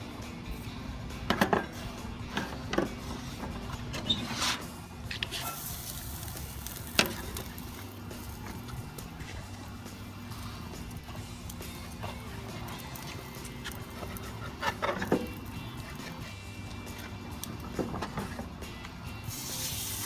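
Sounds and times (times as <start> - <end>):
background music: 0.0 - 20.0
knife scraping board: 4.0 - 5.6.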